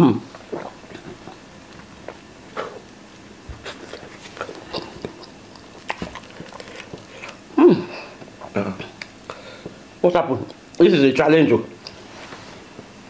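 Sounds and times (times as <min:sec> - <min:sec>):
chewing and mouth smacks: 0:03.5 - 0:07.4.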